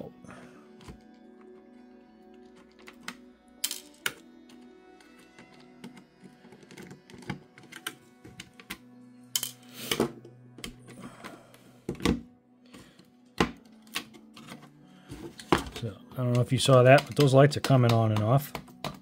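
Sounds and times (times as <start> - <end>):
screwdriver and plastic clicking: 4.0 - 8.8, 15.4 - 19.0.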